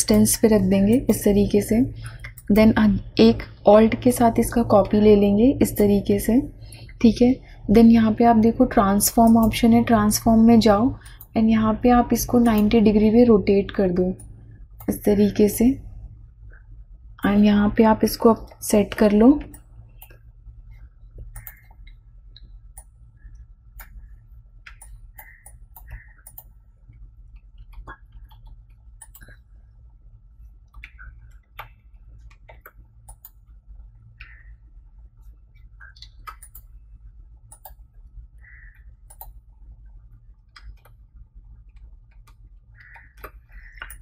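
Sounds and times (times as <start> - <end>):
steady low hum: 0.0 - 44.0
computer mouse clicks: 2.0 - 2.8, 9.1 - 9.7, 19.4 - 29.6, 30.6 - 44.0.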